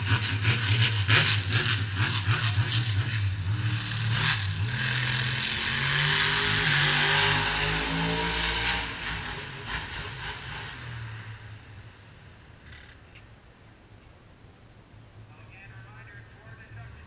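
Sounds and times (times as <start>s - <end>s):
race car engine revving: 0.0s - 11.6s.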